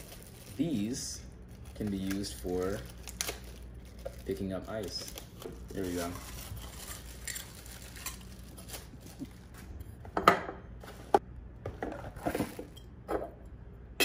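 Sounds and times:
plastic wrap rustling: 0.0s - 9.8s.

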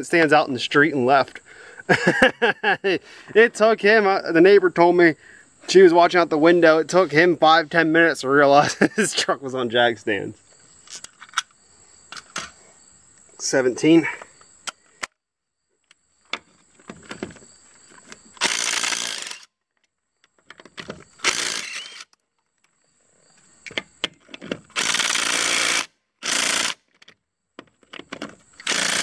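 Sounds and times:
cordless drill spinning: 18.4s - 19.5s, 21.2s - 22.1s, 24.7s - 26.8s, 28.6s - 29.0s.

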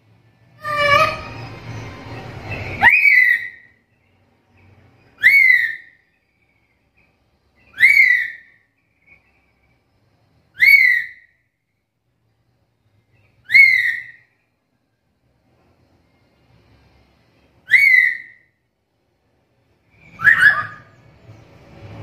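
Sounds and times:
parrot whistled call: 0.6s - 1.5s, 2.5s - 3.8s, 5.2s - 6.0s, 7.6s - 9.2s, 10.5s - 11.4s, 13.4s - 14.3s, 17.6s - 18.5s, 20.0s - 21.0s.

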